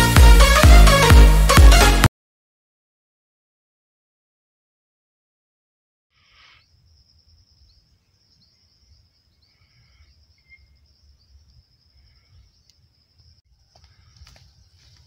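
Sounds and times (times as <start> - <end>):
short bird chirps: 6.2 - 12.9
high insect drone: 6.2 - 15.0.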